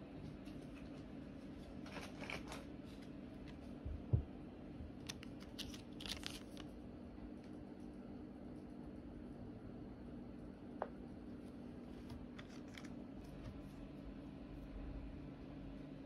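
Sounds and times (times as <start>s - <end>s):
faint steady hum: 0.0s - 16.0s
plastic sachet crinkling: 5.0s - 6.8s.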